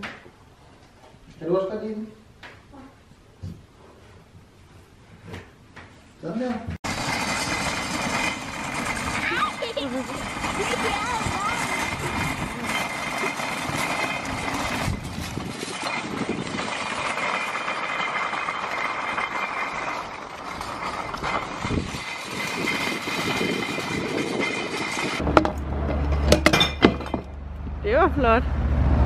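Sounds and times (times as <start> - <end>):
shopping trolley rattling on paving: 6.8 - 27.2.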